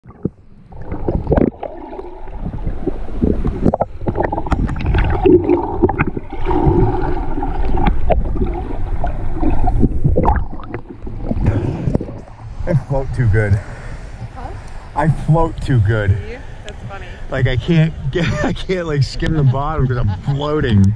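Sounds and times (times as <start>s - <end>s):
underwater rumble of moving water: 0.0s - 20.9s
underwater clicks and knocks: 2.5s - 12.3s.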